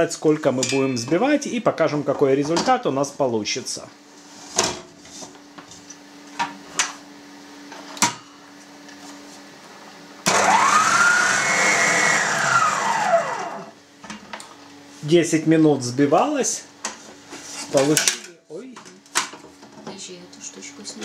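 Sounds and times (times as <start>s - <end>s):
stand mixer motor whine: 10.3s - 13.8s.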